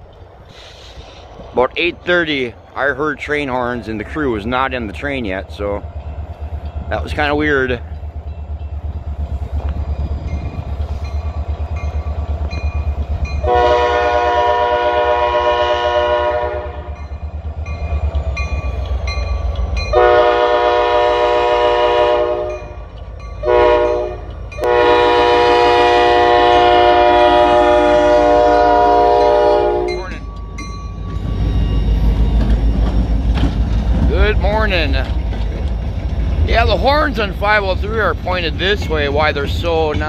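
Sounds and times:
diesel locomotive rumble: 0:00.0 - 0:40.0
locomotive air horn blasts: 0:13.4 - 0:17.0, 0:19.9 - 0:22.8, 0:23.4 - 0:30.2.

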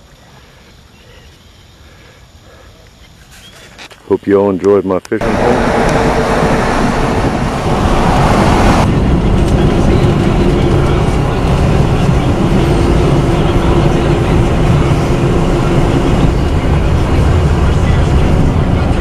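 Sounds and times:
road rumble inside car: 0:05.2 - 0:19.0.

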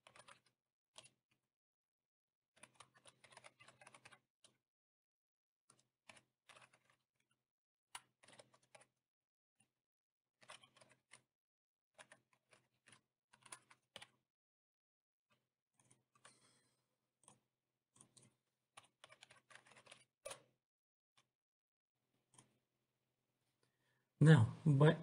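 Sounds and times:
typing on computer keyboard: 0:00.0 - 0:01.2, 0:02.6 - 0:04.6, 0:07.9 - 0:08.9, 0:12.0 - 0:14.2.

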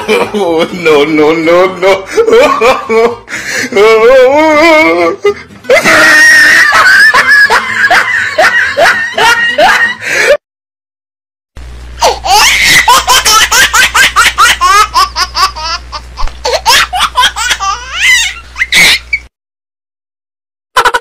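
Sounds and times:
person laughing hard: 0:00.0 - 0:01.0, 0:01.8 - 0:10.4, 0:12.0 - 0:19.2, 0:20.8 - 0:21.0
steady low hum: 0:11.6 - 0:19.2.

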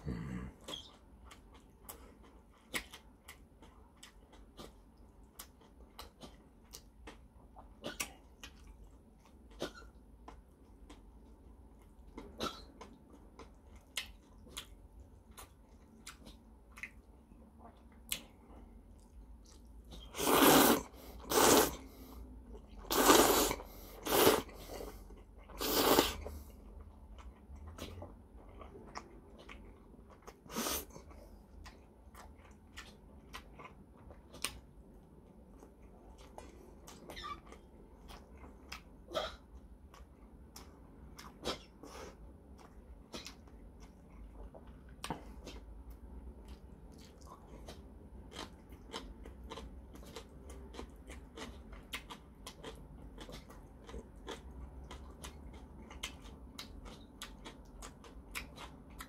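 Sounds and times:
loud noodle slurps: 0:20.1 - 0:21.8, 0:22.9 - 0:24.6, 0:25.6 - 0:26.2.

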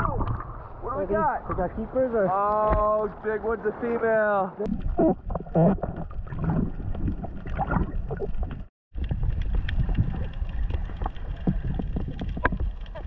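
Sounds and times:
muffled underwater rumble: 0:04.7 - 0:13.0.

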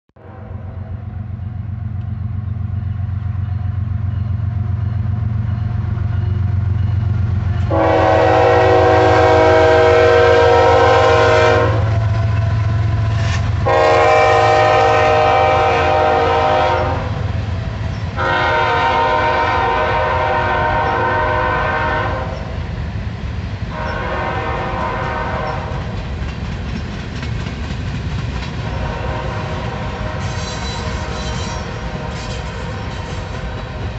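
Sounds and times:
locomotive air horn blasts: 0:00.2 - 0:01.1, 0:07.7 - 0:17.4, 0:18.2 - 0:22.6, 0:23.7 - 0:25.9, 0:28.6 - 0:33.8
diesel locomotive engine rumble: 0:00.2 - 0:33.9
freight cars rolling past: 0:00.6 - 0:33.9.

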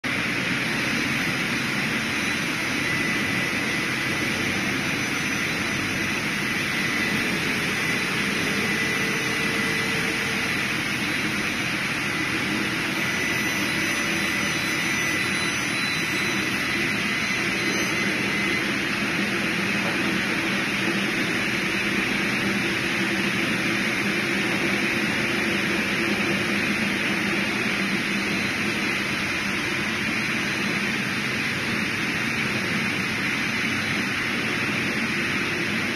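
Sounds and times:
sawmill running: 0:00.0 - 0:35.9
faint high whistle: 0:13.0 - 0:18.8.

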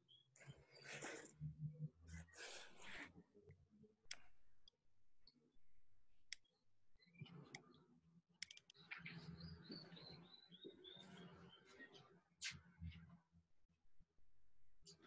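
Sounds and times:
faint sharp clicks: 0:04.1 - 0:04.8, 0:08.4 - 0:09.0.

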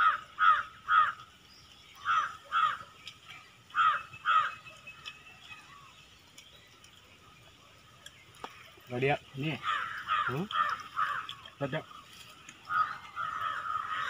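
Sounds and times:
crow cawing: 0:00.0 - 0:01.3, 0:02.0 - 0:02.9, 0:03.7 - 0:04.6, 0:09.5 - 0:14.0.

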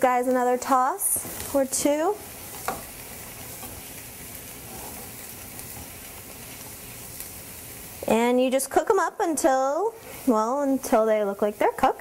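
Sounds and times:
shrimp sizzling in a frying pan: 0:00.0 - 0:12.0
spatula stirring: 0:01.2 - 0:06.8.

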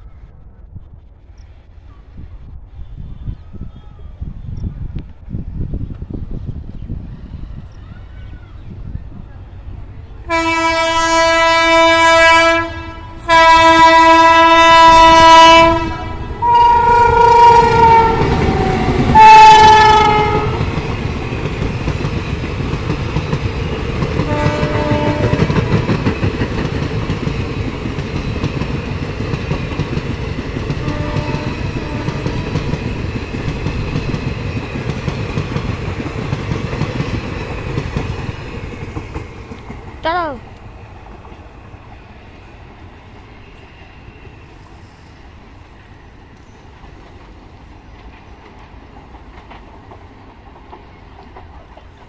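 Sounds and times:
train coaches rumbling by: 0:00.0 - 0:52.0
locomotive horn blasts: 0:10.3 - 0:20.6, 0:24.3 - 0:25.6, 0:30.8 - 0:32.6.

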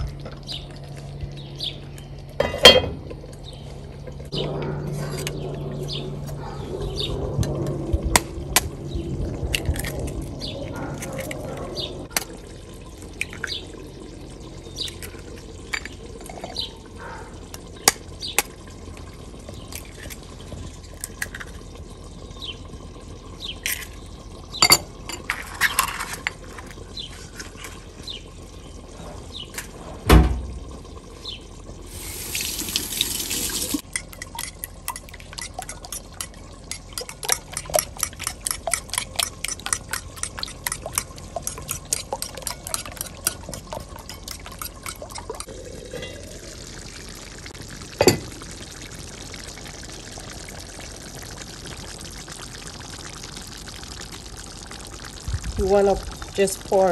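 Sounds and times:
loud thump: 0:30.1 - 0:30.5
fork beating eggs in bowl: 0:33.8 - 0:45.5.

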